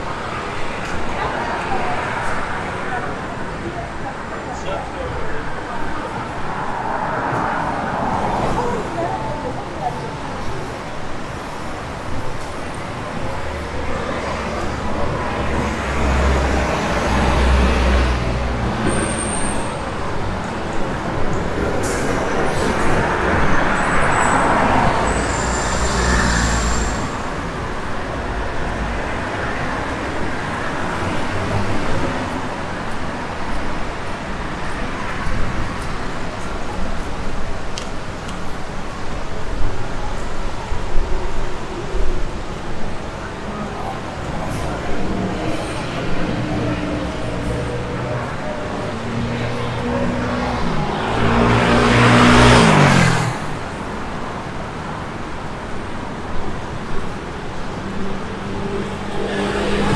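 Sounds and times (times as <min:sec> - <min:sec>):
motor vehicles passing: 0:43.3 - 0:55.2, 0:56.6 - 0:59.9.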